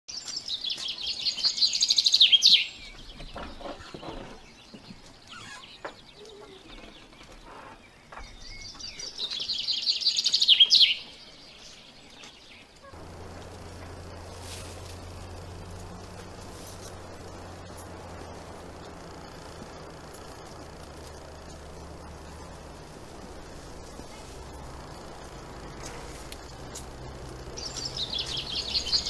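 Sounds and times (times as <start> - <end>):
low steady hum: 12.9 - 29.0.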